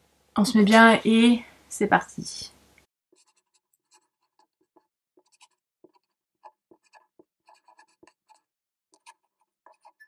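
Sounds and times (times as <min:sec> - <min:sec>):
felt-tip pen writing on paper: 0:03.2 - 0:10.0.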